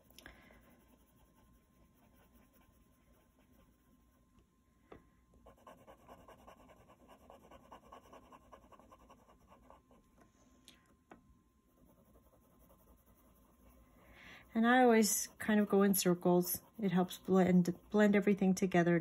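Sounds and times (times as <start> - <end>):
pencil scratching on card: 0.0 - 3.9, 5.4 - 10.0, 11.7 - 18.4.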